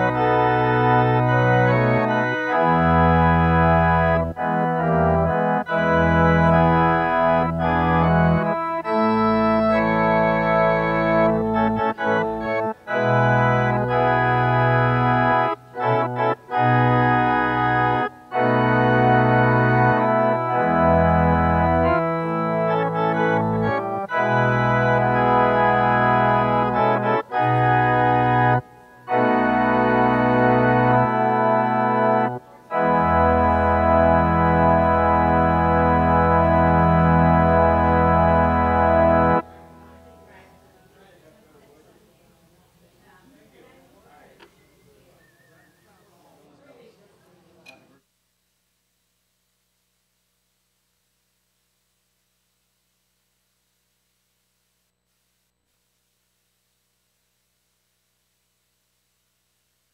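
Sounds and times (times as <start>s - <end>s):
organ playing sustained chords: 0.0s - 41.4s.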